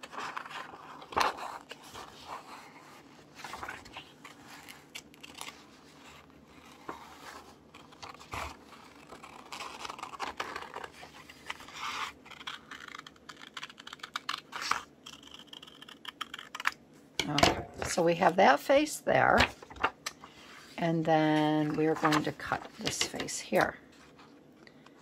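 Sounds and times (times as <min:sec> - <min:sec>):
paper rustling: 0:00.0 - 0:14.8, 0:19.3 - 0:24.4
scissors snipping paper: 0:12.3 - 0:16.8.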